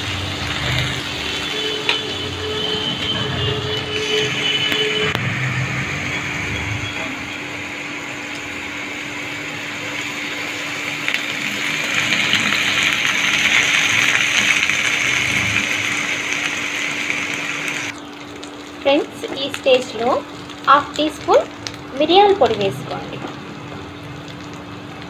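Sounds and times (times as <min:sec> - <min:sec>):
corn sizzling in hot oil: 0:00.0 - 0:25.0.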